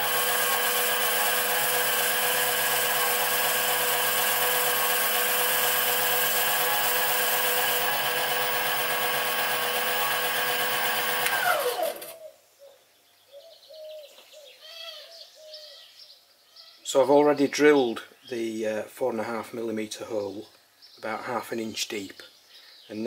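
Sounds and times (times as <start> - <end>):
lathe motor whine: 0.0 - 12.2
faint bird chirps: 12.2 - 18.6.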